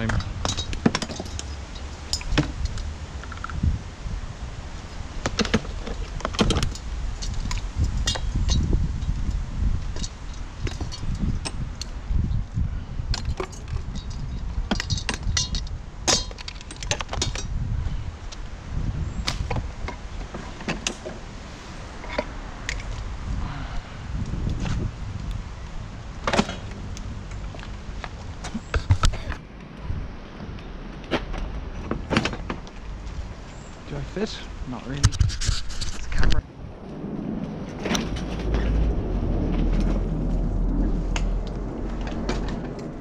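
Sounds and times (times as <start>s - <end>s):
low rumble: 0.0s - 16.4s, 21.2s - 34.7s, 36.0s - 43.0s
hard objects clinking and clanking: 13.1s - 17.5s.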